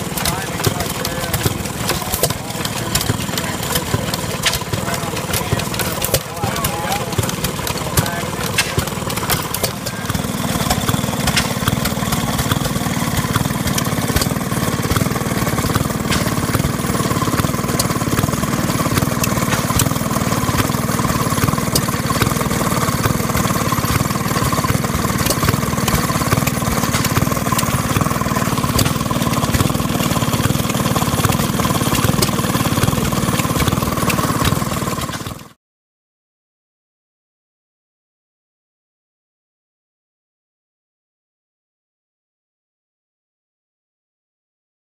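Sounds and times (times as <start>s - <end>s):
two-stroke engine running: 0.0s - 35.6s.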